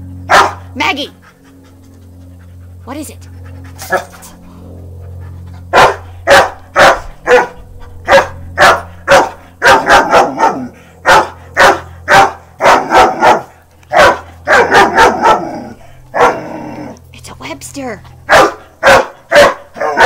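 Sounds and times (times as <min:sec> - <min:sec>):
puppy barking: 0:00.3 - 0:00.7, 0:05.7 - 0:16.9, 0:18.2 - 0:20.0.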